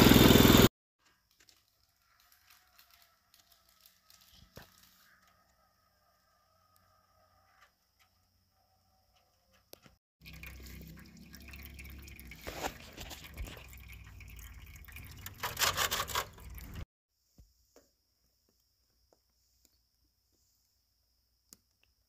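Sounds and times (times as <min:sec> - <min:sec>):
clicks and handling noise: 0:01.0 - 0:05.6, 0:15.2 - 0:16.8
oil trickling and dripping: 0:09.8 - 0:16.8.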